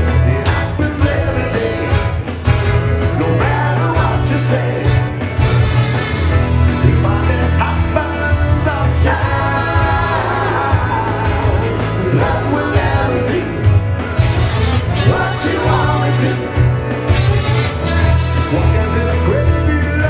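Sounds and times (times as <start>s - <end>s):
person singing: 0.0s - 2.3s, 3.2s - 5.1s, 6.7s - 13.7s, 14.9s - 16.7s, 18.3s - 20.0s
rock and roll band playing: 0.0s - 20.0s.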